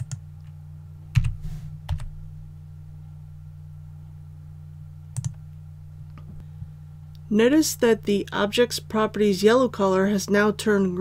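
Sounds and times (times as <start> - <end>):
low electrical hum: 0.0 - 11.0
keyboard and mouse clicks: 5.1 - 5.4.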